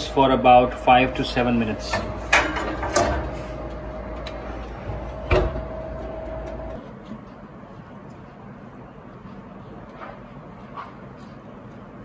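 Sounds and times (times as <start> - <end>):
steady hum: 0.0 - 10.6
oven door shutting: 1.6 - 6.8.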